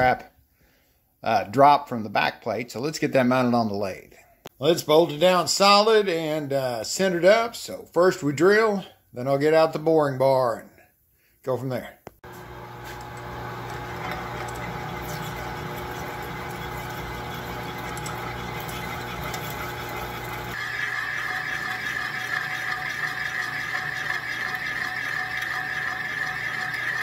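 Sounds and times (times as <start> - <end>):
metal lathe running: 12.3 - 27.0
drill bit feeding into metal: 12.4 - 27.0
boring bar cutting with high squeal: 20.6 - 27.0.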